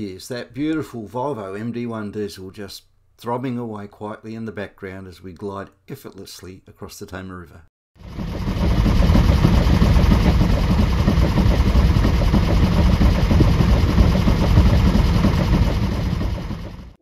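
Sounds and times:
boat diesel engine throbbing: 0:08.0 - 0:17.0.

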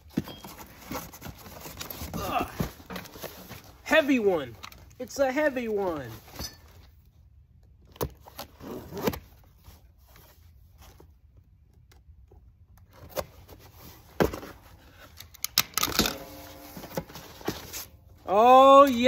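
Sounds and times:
cardboard scraping and rustling: 0:00.0 - 0:03.8, 0:16.0 - 0:18.2.

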